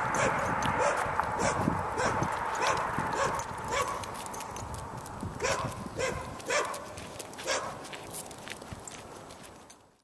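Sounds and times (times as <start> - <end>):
dog barking: 0.2 - 4.0, 5.4 - 7.8.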